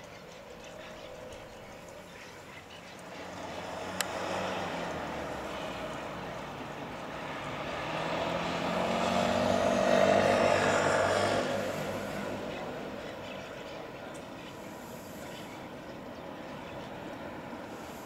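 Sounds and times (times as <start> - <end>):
jet airliner passing overhead: 0.1 - 18.0.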